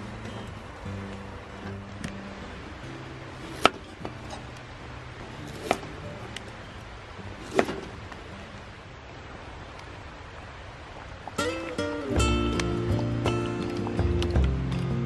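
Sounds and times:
soft background music: 0:00.0 - 0:08.8, 0:11.4 - 0:15.0
knife chopping on wooden board: 0:05.5 - 0:05.8, 0:07.4 - 0:07.8.

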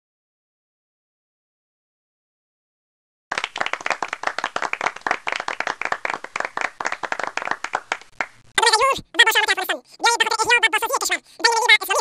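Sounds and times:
audience applauding: 0:03.3 - 0:08.4.

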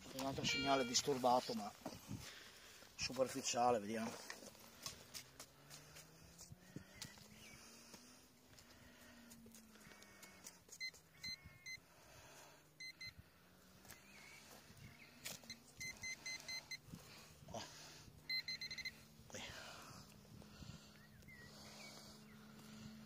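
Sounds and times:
metal detector beeping: 0:00.2 - 0:01.6, 0:10.4 - 0:11.8, 0:12.8 - 0:13.2, 0:13.9 - 0:16.9, 0:18.2 - 0:19.1.

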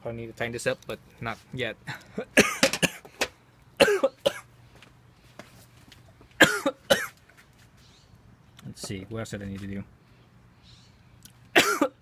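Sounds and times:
man coughing: 0:01.9 - 0:03.1, 0:03.8 - 0:04.5, 0:06.4 - 0:07.2, 0:11.6 - 0:12.0.

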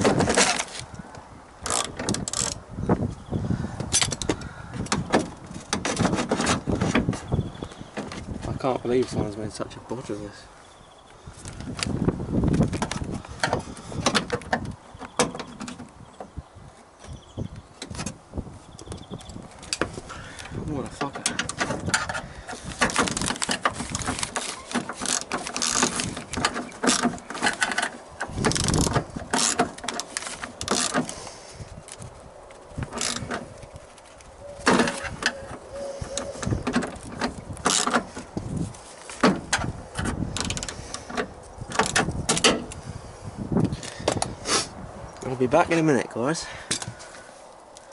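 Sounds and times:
plastic and tape crinkling: 0:18.9 - 0:42.8
plastic crackling and rustling: 0:21.0 - 0:42.3.

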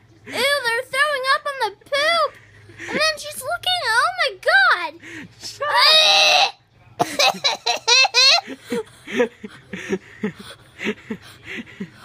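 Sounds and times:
girl squealing: 0:05.6 - 0:06.6.

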